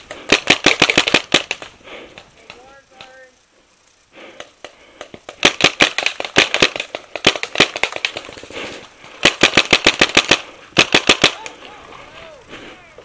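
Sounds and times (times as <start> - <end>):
paintball marker firing sharp pops: 0.1 - 3.2, 4.4 - 8.5, 9.2 - 11.6.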